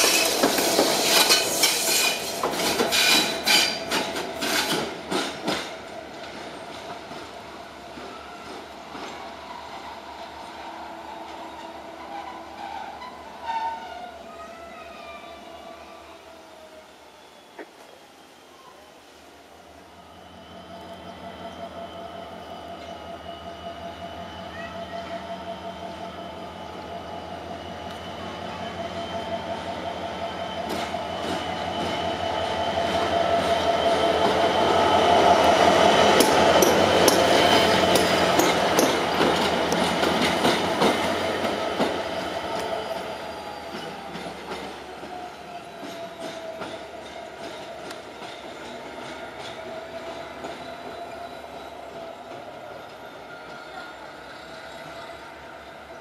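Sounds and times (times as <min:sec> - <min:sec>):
diesel locomotive engine whine: 0:00.0 - 0:56.0
wheels clicking over rail joints: 0:37.9 - 0:43.0.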